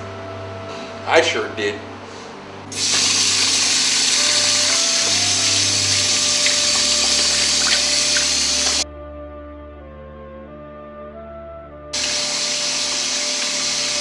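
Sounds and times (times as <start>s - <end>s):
faucet water running into sink: 2.7s - 8.8s, 12.0s - 14.0s.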